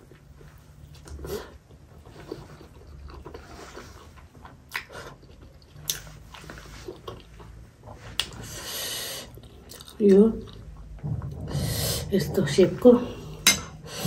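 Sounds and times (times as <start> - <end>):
close-up chewing: 0.1 - 11.0
wet lip smacks and mouth clicks: 8.0 - 8.4.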